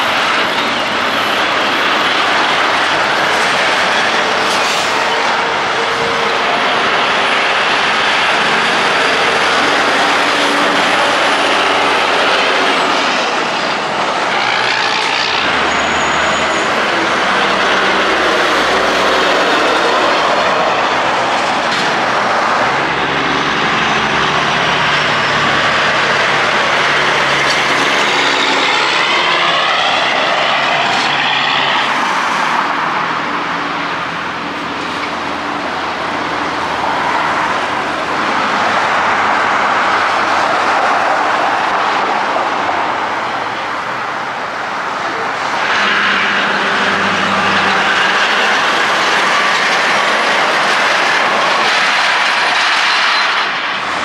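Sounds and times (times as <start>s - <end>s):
trucks and cars passing: 0.0s - 54.0s
truck engine pulling away: 15.2s - 40.7s, 45.3s - 54.0s.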